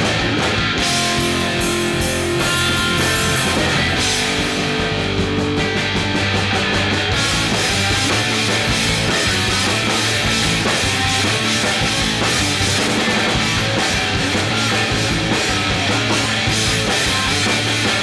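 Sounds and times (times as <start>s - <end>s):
live rock band playing: 0.0s - 18.0s
cymbals crashing: 1.2s - 4.4s.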